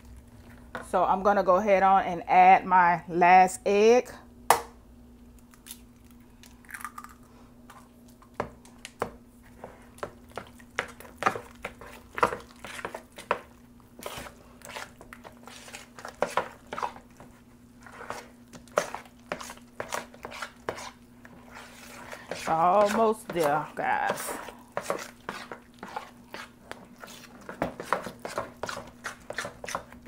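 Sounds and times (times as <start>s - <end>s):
batter squelching: 7.9s - 30.0s.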